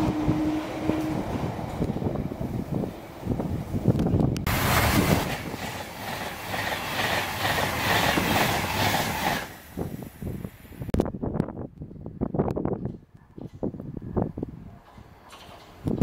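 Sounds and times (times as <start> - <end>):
train passing at speed: 0.0 - 10.8
wheels clattering over rail joints: 14.8 - 16.0.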